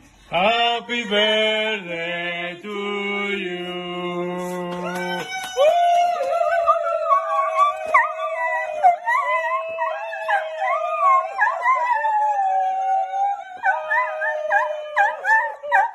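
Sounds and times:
dog howling: 4.8s - 15.9s.

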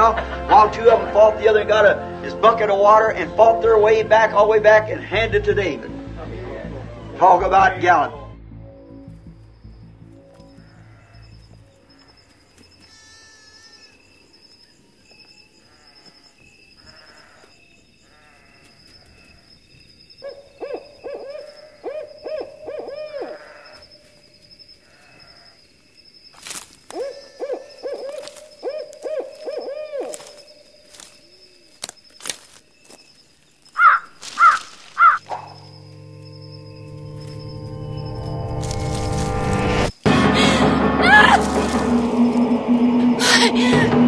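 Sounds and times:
owl hooting: 20.2s - 24.1s, 26.9s - 31.7s, 33.8s - 38.8s
high-pitched trill: 35.2s - 44.0s.

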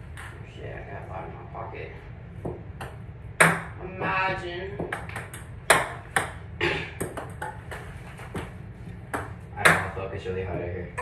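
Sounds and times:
ping pong balls bouncing: 0.0s - 0.4s, 2.4s - 4.2s, 4.8s - 11.0s.

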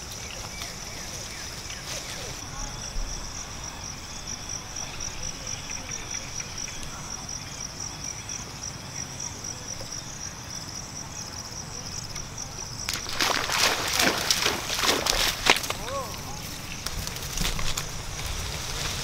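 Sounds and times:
insects chirping: 0.0s - 19.0s
splashing in shallow water: 12.4s - 19.0s
loud splash: 12.9s - 16.1s.

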